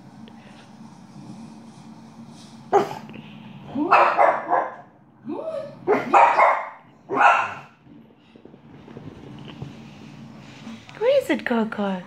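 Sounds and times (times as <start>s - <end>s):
dog barking: 3.9s - 4.9s, 5.9s - 7.8s.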